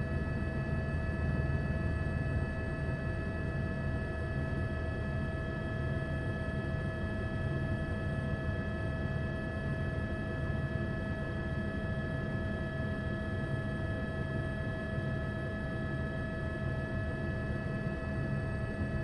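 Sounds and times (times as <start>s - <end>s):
helicopter engine and rotor: 0.0s - 19.0s.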